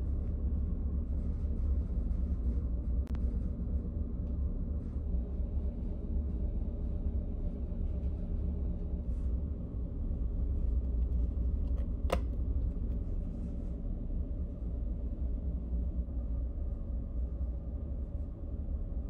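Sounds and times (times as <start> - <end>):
low machinery hum: 0.0 - 19.0.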